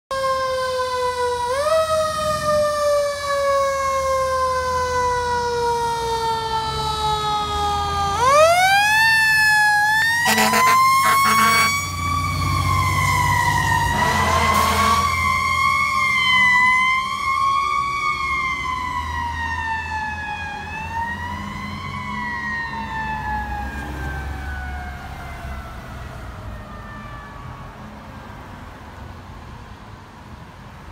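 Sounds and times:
mechanical siren wailing: 0.2s - 27.7s
truck engine rumble: 4.0s - 21.1s
horn blasts: 10.2s - 11.9s, 13.9s - 15.1s.

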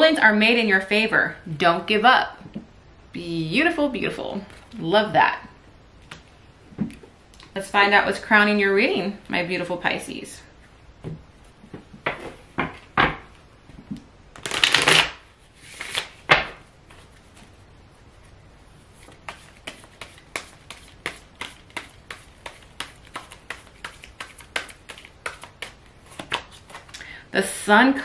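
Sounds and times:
cards being shuffled: 14.4s - 17.3s, 19.0s - 27.0s.

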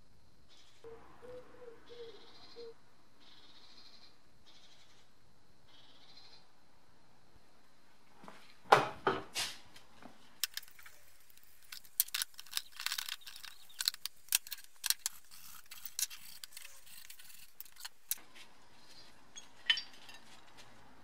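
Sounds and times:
metal clicks knocks and scrapes: 10.4s - 18.2s.

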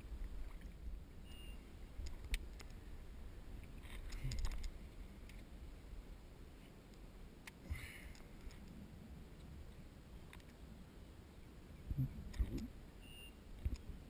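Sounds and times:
low rumble: 11.7s - 12.9s.

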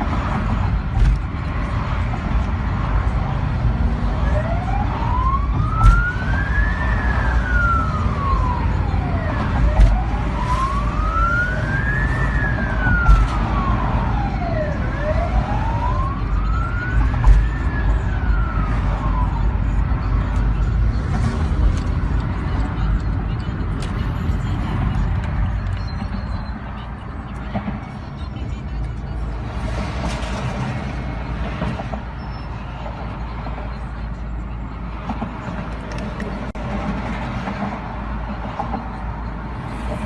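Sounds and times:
road rumble inside car: 0.0s - 40.0s
siren wailing: 4.2s - 20.8s.

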